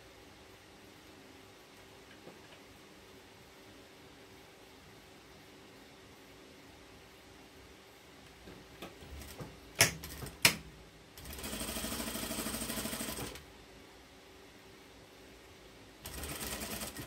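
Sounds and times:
sewing machine stitching: 11.2s - 13.4s, 16.0s - 17.0s.

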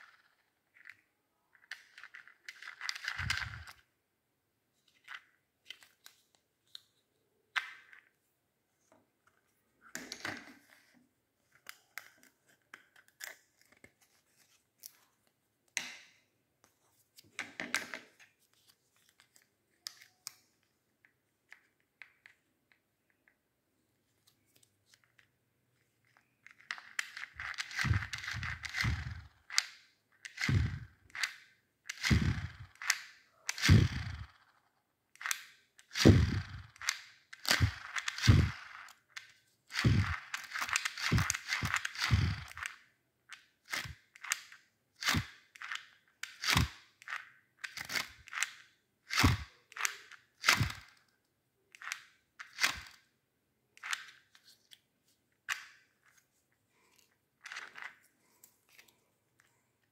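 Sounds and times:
small plastic clicks and scrapes: 0.0s - 3.9s, 4.8s - 8.2s, 8.8s - 23.4s, 24.1s - 53.1s, 53.7s - 59.9s
small fan motor whirring: 3.1s - 3.7s, 27.5s - 29.3s, 30.3s - 31.0s, 31.9s - 32.7s, 33.5s - 34.4s, 35.9s - 38.9s, 39.7s - 42.7s, 49.1s - 49.4s, 50.5s - 50.9s.

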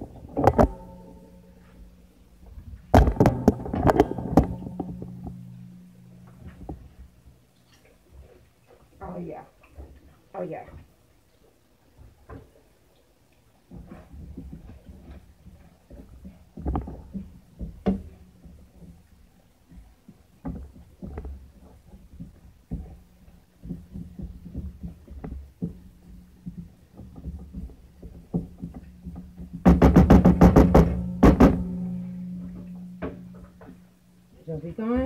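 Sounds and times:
low hum: 0.0s - 8.0s, 30.3s - 35.0s.

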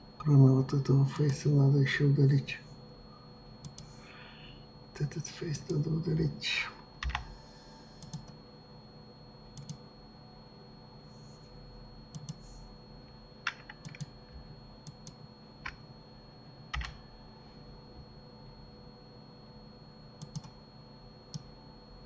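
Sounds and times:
faint steady hum: 0.0s - 22.0s
keyboard keystrokes: 13.4s - 14.1s, 16.7s - 17.0s.

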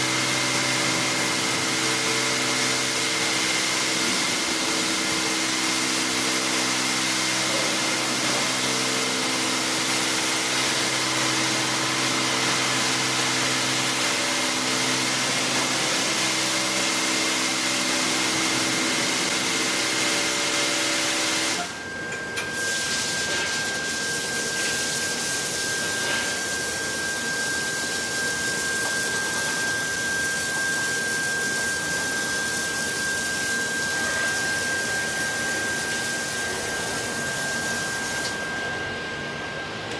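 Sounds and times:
pump motor hum: 0.0s - 39.9s
high-pressure water spray hissing: 22.6s - 38.4s.

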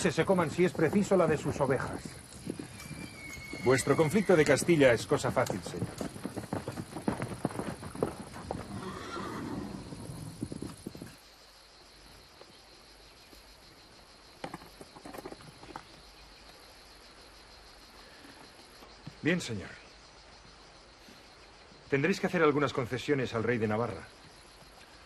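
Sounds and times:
horse hooves clip-clopping: 0.0s - 11.2s, 14.3s - 16.7s
horse whinnying: 2.6s - 4.8s, 8.5s - 10.4s.

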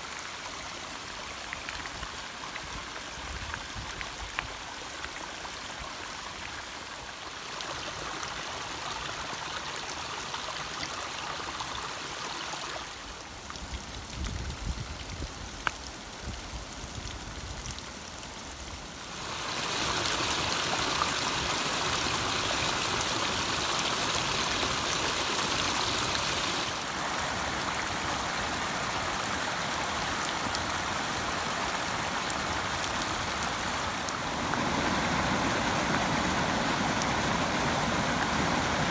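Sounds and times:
water rushing over rocks: 19.0s - 38.9s.

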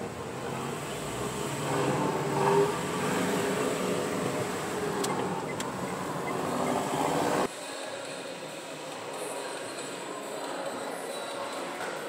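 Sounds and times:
car engine and road noise: 0.0s - 7.5s.

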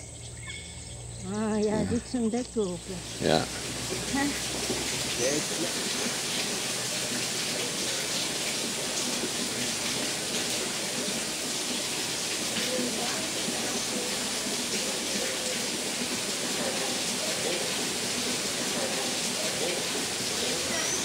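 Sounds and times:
rushing hissing rainforest ambience: 0.0s - 21.0s
faint voices: 1.2s - 4.5s, 5.1s - 9.5s, 12.5s - 21.0s.

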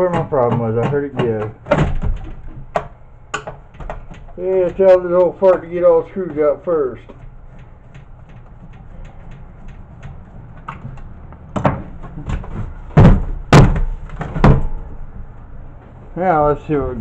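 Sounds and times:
loud knocks and clatters: 0.0s - 5.0s, 10.7s - 14.9s.

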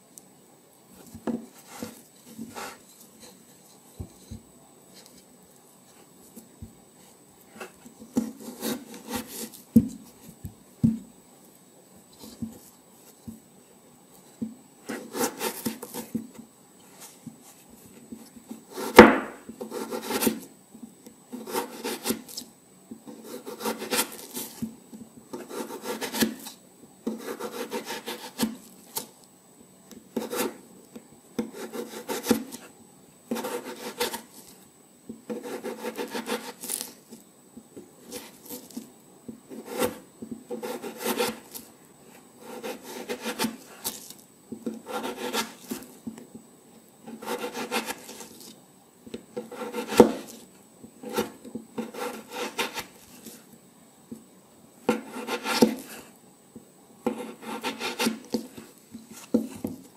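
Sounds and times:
knife slicing potato: 7.6s - 10.1s, 14.9s - 16.1s, 18.6s - 20.5s, 21.3s - 22.4s, 23.1s - 24.6s, 25.3s - 29.1s, 30.1s - 30.6s, 31.4s - 32.7s, 33.3s - 34.3s, 35.3s - 37.0s, 39.5s - 41.7s, 42.4s - 45.9s, 47.1s - 48.6s, 49.3s - 50.4s, 51.0s - 53.4s, 54.9s - 56.1s, 57.0s - 59.8s.

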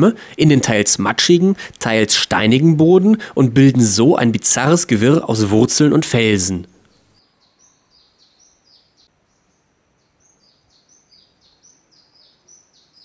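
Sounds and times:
high bird chirps: 6.8s - 13.0s.

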